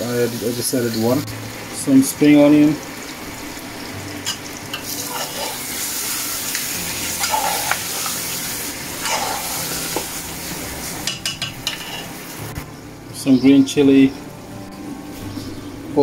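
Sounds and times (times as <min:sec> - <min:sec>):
curry sizzling in a pot: 0:00.0 - 0:12.7
metal spoon scraping a pot: 0:04.3 - 0:05.7, 0:07.2 - 0:08.2, 0:09.0 - 0:09.6, 0:11.1 - 0:12.1.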